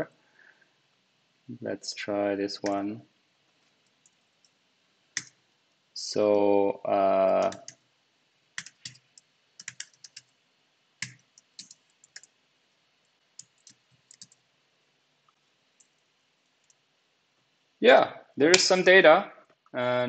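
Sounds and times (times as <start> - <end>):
typing on a computer keyboard: 7.3 - 7.8, 8.6 - 10.3, 11.0 - 12.4, 13.4 - 14.4.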